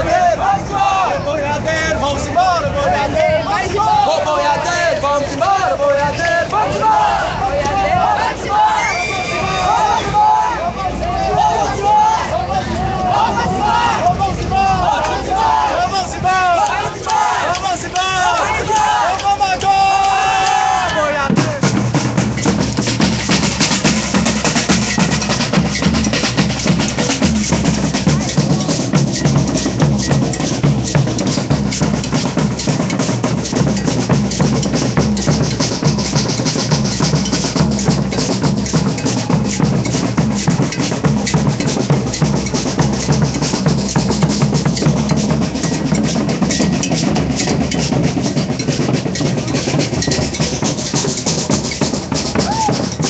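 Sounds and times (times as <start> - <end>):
percussion group drumming: 0.0 - 53.0.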